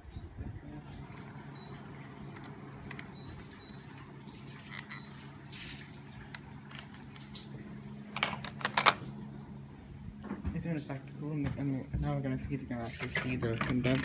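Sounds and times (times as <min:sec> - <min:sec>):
steady low hum: 0:00.0 - 0:14.0
remote control clicks and clatter: 0:02.2 - 0:03.3, 0:06.2 - 0:07.3, 0:08.1 - 0:09.1, 0:12.9 - 0:14.0.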